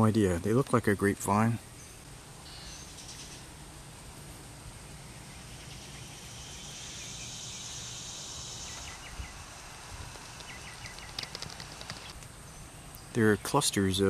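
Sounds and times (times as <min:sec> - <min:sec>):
insects droning: 0:01.7 - 0:14.0
insect buzz: 0:02.4 - 0:13.1.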